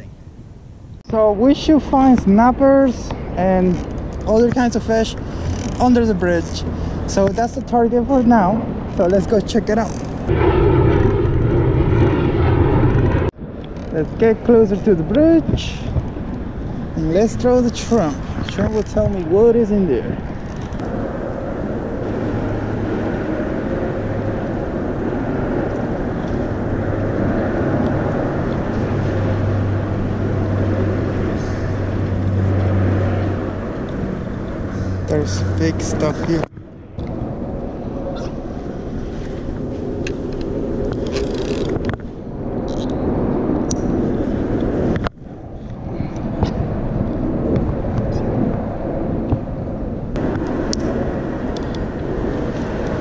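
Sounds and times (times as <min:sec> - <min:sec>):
low hum: 0:00.0 - 0:53.0
steady mechanical drone: 0:00.0 - 0:53.0
traffic rumble under bridge: 0:00.0 - 0:53.0.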